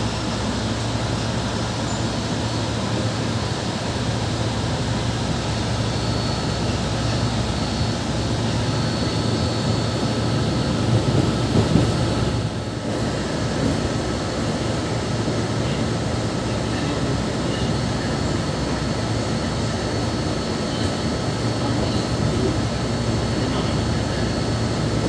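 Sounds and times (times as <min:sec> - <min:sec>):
train wheels rumbling on rails: 0:00.0 - 0:25.0.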